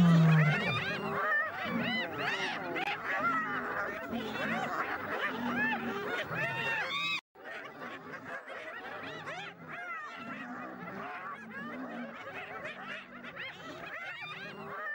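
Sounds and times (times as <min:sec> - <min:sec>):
hyenas giggling: 0:00.0 - 0:07.1.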